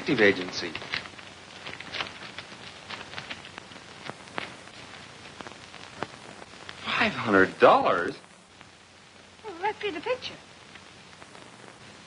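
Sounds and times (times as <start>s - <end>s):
paper crackling: 0.0s - 8.7s
film soundtrack hiss: 0.0s - 12.0s.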